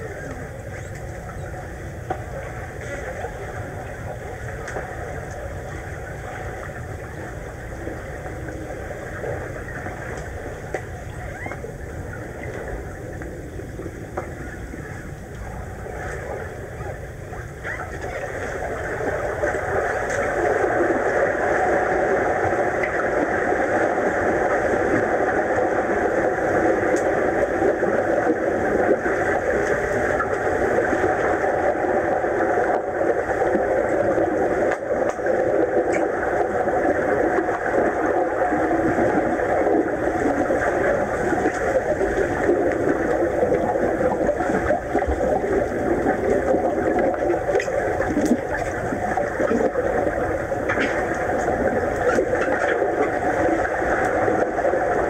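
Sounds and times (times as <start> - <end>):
muffled underwater pool noise: 0.0 - 55.0
faint clicks: 0.2 - 3.4, 34.6 - 36.5.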